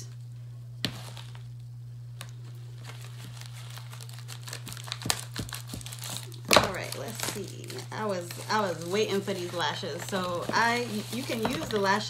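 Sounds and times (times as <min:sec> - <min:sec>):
plastic packaging crinkling: 0:00.8 - 0:12.0
scissors snipping plastic: 0:03.4 - 0:12.0.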